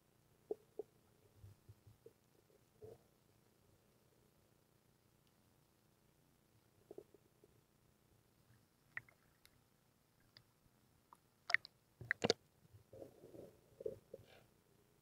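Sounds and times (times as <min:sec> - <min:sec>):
sharp underwater clicks: 0:08.9 - 0:09.6, 0:11.1 - 0:12.4.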